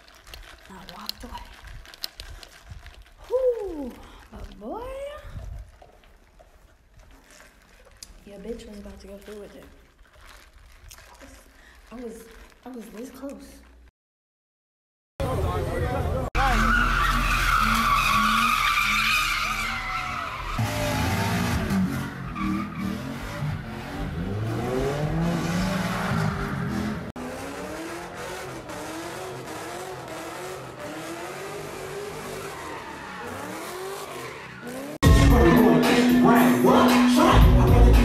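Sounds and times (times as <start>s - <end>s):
tires squealing: 16.4s - 35.0s
car engine revving: 16.4s - 38.0s
loud live music: 35.0s - 38.0s.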